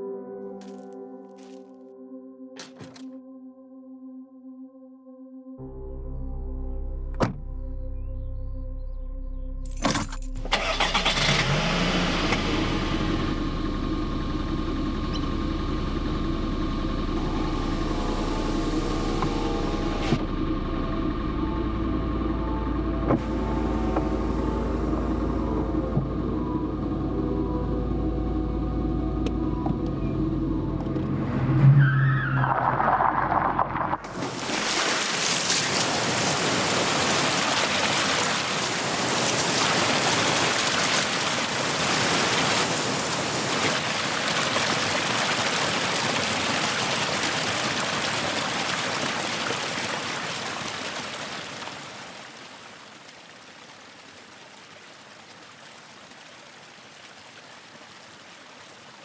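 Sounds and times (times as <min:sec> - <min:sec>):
water rushing around car: 0:10.5 - 0:20.3, 0:23.1 - 0:26.2, 0:32.4 - 0:59.0.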